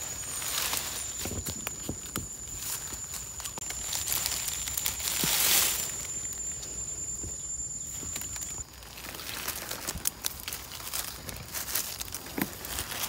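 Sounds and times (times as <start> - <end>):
steady high-pitched whine: 0.0 - 8.9
rustling of leaf litter: 0.0 - 13.0.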